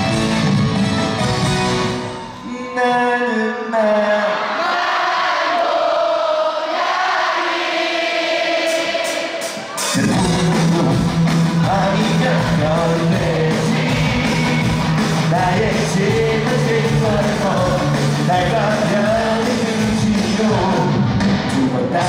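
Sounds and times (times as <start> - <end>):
rock band with bass and drums: 0.0 - 2.4, 8.6 - 22.0
crowd singing along: 3.2 - 22.0.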